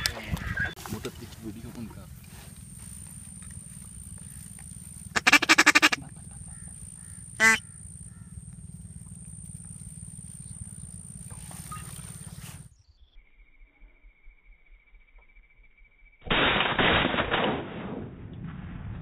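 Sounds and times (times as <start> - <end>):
duck quacking: 5.2 - 6.7, 7.4 - 7.6.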